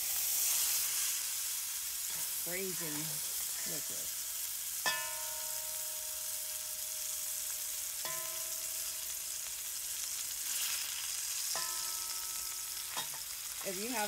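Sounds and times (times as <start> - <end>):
meat sizzling in hot oil: 0.0 - 14.0
metal tongs clinking on pot: 8.0 - 9.0, 11.5 - 14.0.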